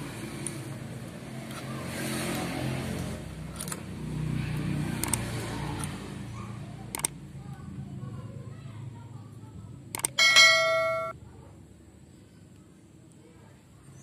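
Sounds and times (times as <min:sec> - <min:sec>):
motor vehicle engine: 0:00.0 - 0:08.4, 0:09.8 - 0:11.1.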